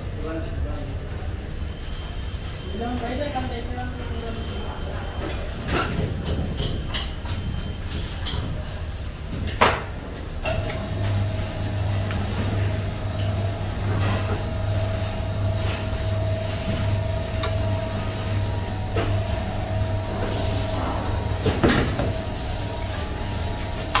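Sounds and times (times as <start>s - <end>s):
machine hum with whine: 10.4s - 24.0s.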